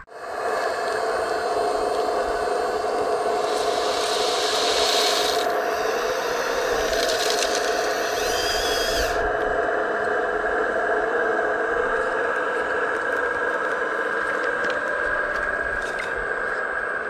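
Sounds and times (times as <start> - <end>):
high motor whine: 0.0 - 17.0
hiss: 0.1 - 9.3
hydraulic pump whining: 0.6 - 9.6
machine scraping and clicking: 6.7 - 8.0.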